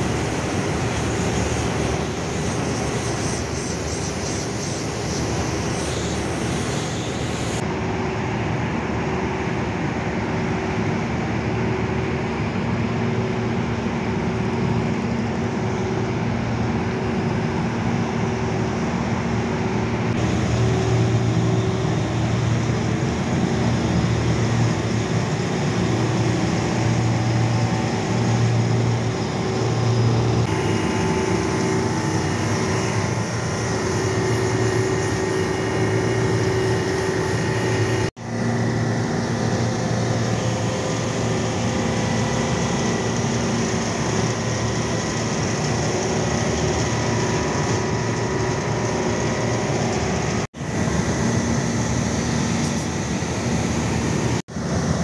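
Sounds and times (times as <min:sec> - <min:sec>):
machine running with low hum: 0:00.0 - 0:55.0.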